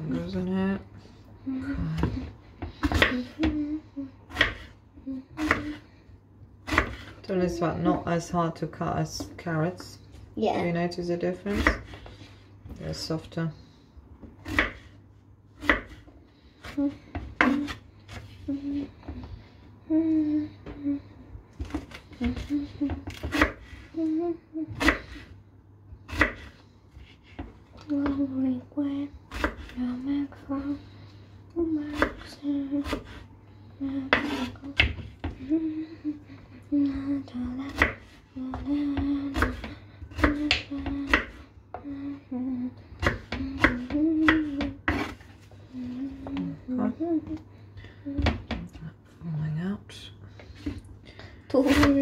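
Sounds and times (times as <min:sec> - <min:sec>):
knife chopping on cutting board: 0:02.0 - 0:03.4, 0:05.4 - 0:05.8, 0:06.6 - 0:07.2, 0:14.4 - 0:14.9, 0:15.6 - 0:16.1, 0:21.6 - 0:23.9, 0:26.1 - 0:28.2, 0:34.1 - 0:35.4, 0:37.7 - 0:41.4, 0:43.0 - 0:45.3
person humming: 0:03.0 - 0:04.2, 0:05.0 - 0:05.8, 0:19.8 - 0:21.2, 0:23.9 - 0:25.2, 0:35.4 - 0:44.8, 0:45.7 - 0:47.4.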